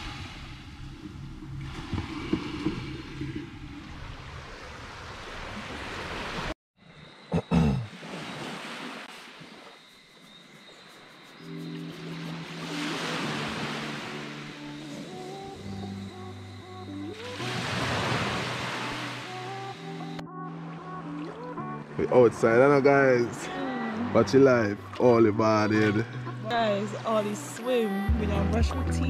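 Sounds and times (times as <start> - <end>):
surf on the beach: 0.0 - 6.6, 7.8 - 20.2, 21.2 - 28.0
wind: 0.0 - 29.0
soft background music: 11.1 - 29.0.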